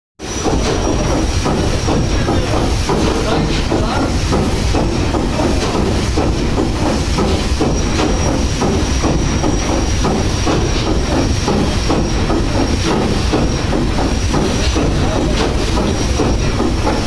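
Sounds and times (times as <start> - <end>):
steam engine clanking: 0.2 - 17.0
steam hiss: 0.2 - 17.0.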